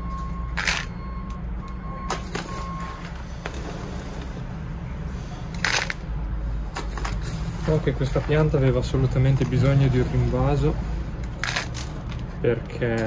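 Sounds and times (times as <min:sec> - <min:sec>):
reversing alarm beeping: 0:00.0 - 0:03.9.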